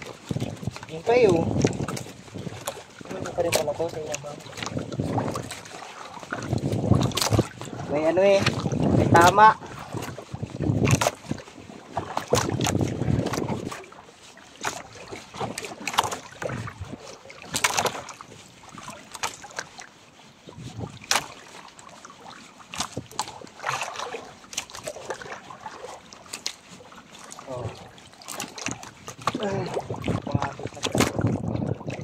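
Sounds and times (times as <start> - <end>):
wind buffeting microphone: 0.0 - 13.9, 14.8 - 18.1, 20.4 - 21.2, 28.6 - 32.0.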